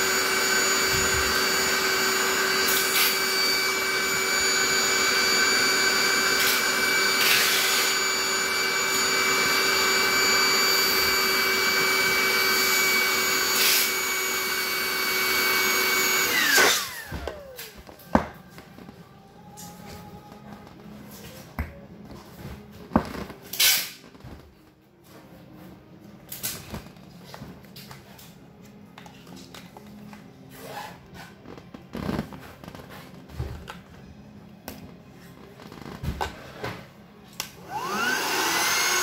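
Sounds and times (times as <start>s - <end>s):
electric air pump whining: 0.0s - 18.9s, 30.5s - 34.1s, 34.8s - 39.0s.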